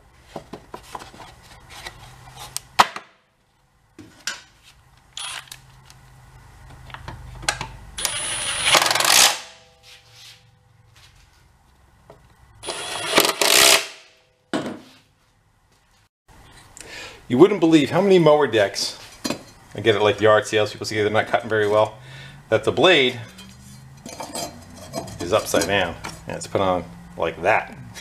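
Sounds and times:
power tool bursts: 5.2 - 5.6, 8.0 - 9.7, 12.6 - 14.1.

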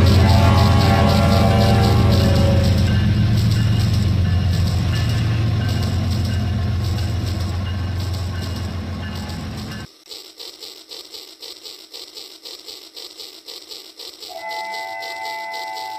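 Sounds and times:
loud low rumble: 0.0 - 9.9
model train wheels clicking: 0.0 - 15.9.

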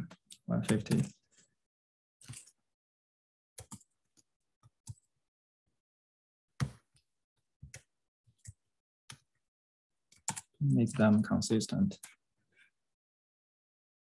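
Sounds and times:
keyboard and mouse clicks: 0.0 - 1.1, 3.6 - 5.1, 6.6 - 9.3, 10.1 - 11.2.

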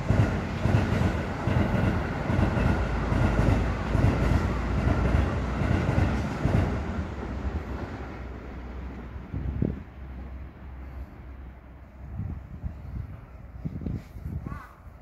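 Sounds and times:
train wheels clacking on rails: 0.0 - 9.0
train rumbling: 0.0 - 15.0.

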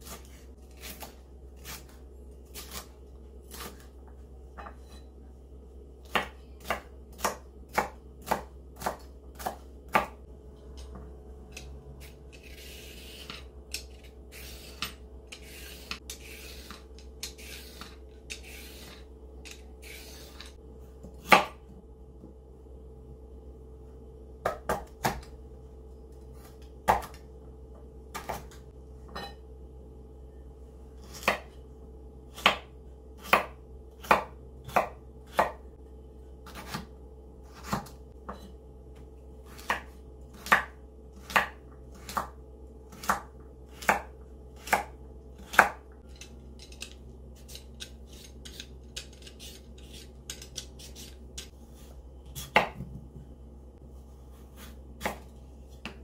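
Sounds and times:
knife chopping on cutting board: 6.0 - 10.2, 12.4 - 21.6, 26.5 - 27.2, 32.3 - 35.6, 36.5 - 36.9, 37.5 - 38.5, 39.5 - 51.5, 52.4 - 53.2, 54.5 - 56.0.

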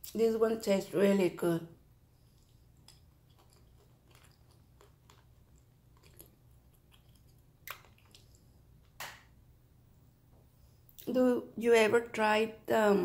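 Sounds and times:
soft chewing crunches: 2.1 - 9.0.

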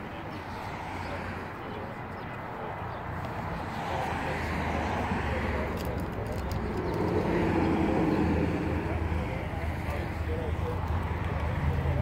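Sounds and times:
low vehicle rumble: 0.4 - 12.0.

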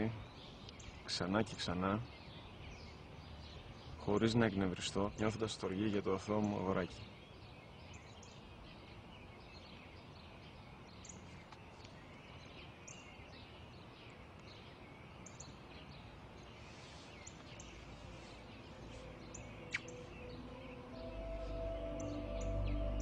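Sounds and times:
faint outdoor hiss: 0.0 - 23.0
small birds chirping: 0.0 - 23.0
soft music: 17.6 - 23.0.

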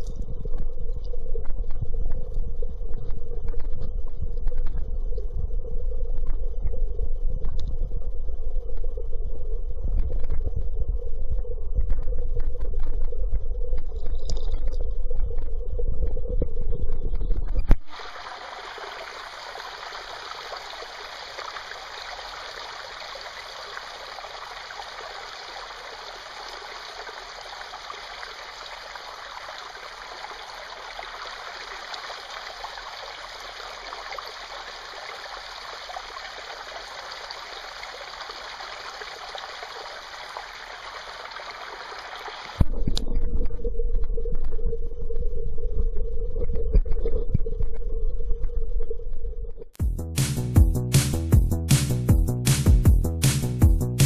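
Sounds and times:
creek water running over rocks: 17.6 - 43.0
background music with low throb: 49.8 - 54.0.

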